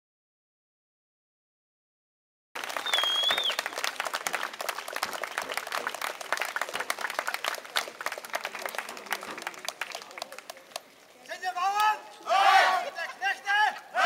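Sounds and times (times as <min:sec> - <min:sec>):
crowd applauding: 0:02.6 - 0:11.1
high whistle: 0:02.8 - 0:03.6.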